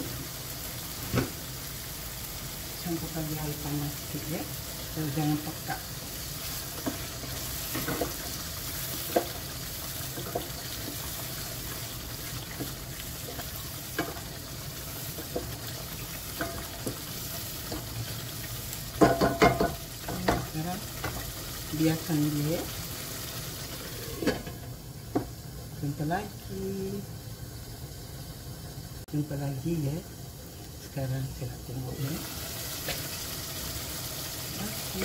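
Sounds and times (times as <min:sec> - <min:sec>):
sauce simmering and sizzling: 0:00.0 - 0:35.0
spoon knocking against pot: 0:19.0 - 0:20.4.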